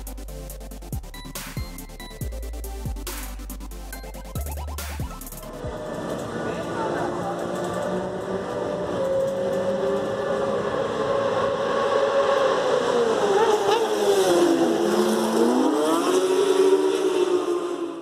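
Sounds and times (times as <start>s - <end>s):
motorbike engines revving: 4.4s - 18.0s.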